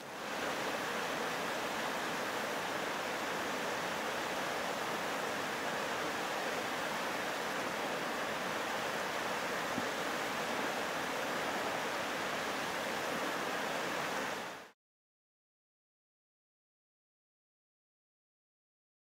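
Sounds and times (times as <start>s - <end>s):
steady rushing hiss: 0.0s - 14.7s.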